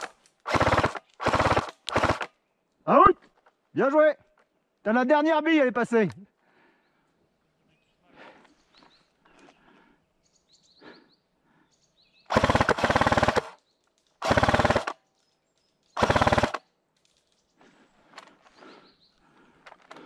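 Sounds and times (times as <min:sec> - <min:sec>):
airsoft gun full-auto bursts: 0:00.0 - 0:02.3, 0:12.3 - 0:13.6, 0:14.2 - 0:15.0, 0:16.0 - 0:16.7.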